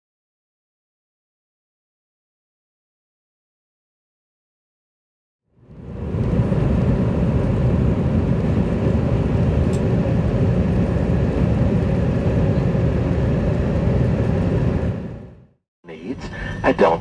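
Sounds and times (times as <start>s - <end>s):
jet engines rumbling: 5.5s - 17.0s
rushing air: 5.6s - 15.5s.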